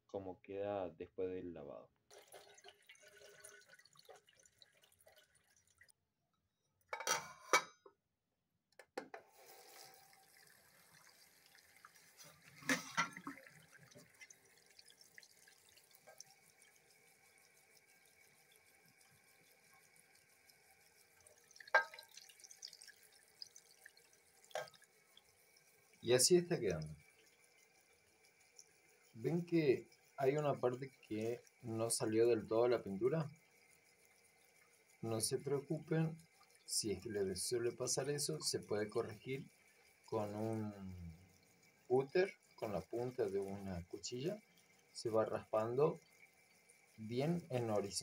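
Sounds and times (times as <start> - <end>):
tap water running into sink: 2.1 - 5.9, 9.1 - 33.0, 42.0 - 46.3
tumbler knocks and splashes: 12.2 - 14.2, 21.6 - 23.0.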